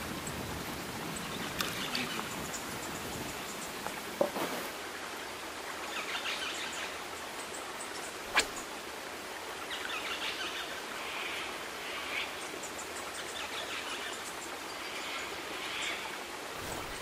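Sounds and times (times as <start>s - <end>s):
flowing river hiss: 0.0s - 17.0s
small birds calling: 1.1s - 3.9s.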